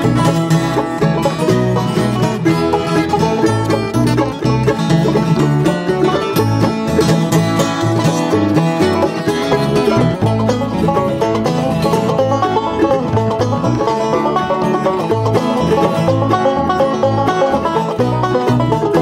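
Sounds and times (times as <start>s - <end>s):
bluegrass band playing: 0.0s - 19.0s
upright bass plucking: 0.0s - 19.0s.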